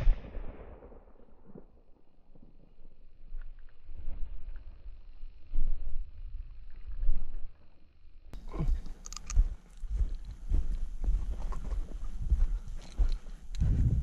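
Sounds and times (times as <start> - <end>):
footsteps on stony ground: 8.4 - 14.0
camera handling rumble: 8.8 - 10.4.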